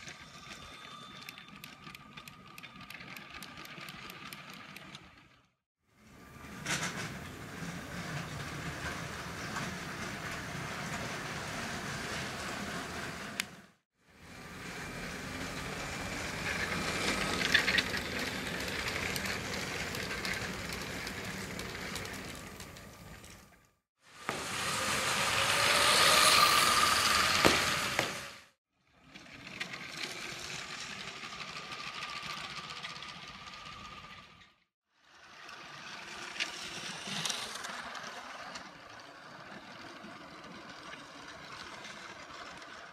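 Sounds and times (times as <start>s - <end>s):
toy train wheels rattling on track: 0.0s - 5.4s, 14.4s - 23.5s, 29.0s - 42.9s
electric motor whine: 24.3s - 28.3s.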